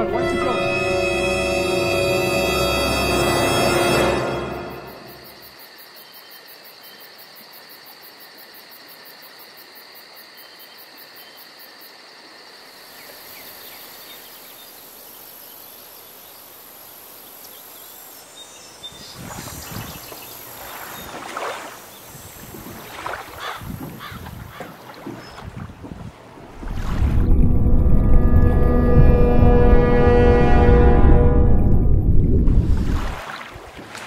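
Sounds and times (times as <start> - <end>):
insects chirping: 0.0 - 25.7
wind buffeting microphone: 22.1 - 33.2.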